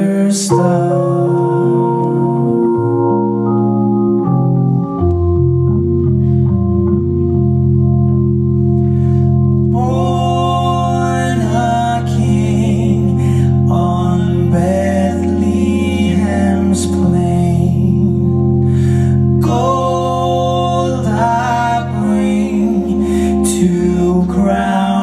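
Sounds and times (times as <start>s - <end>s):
organ playing chords: 0.0s - 25.0s
deep bass note: 1.5s - 25.0s
voices singing: 9.8s - 18.1s, 19.4s - 25.0s.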